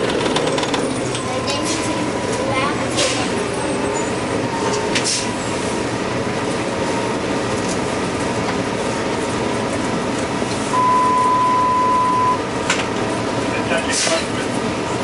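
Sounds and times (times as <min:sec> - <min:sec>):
rattling in bus cabin: 0:00.0 - 0:10.6, 0:12.5 - 0:15.0
bus engine rumble: 0:00.0 - 0:15.0
steady high beep: 0:10.7 - 0:12.4.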